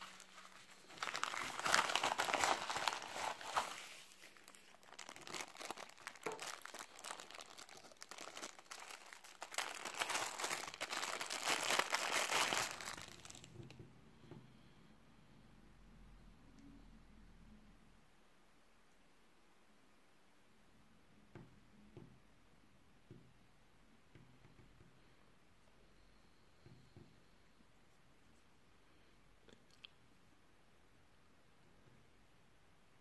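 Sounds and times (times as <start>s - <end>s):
plastic packaging crinkling: 0.0s - 13.7s.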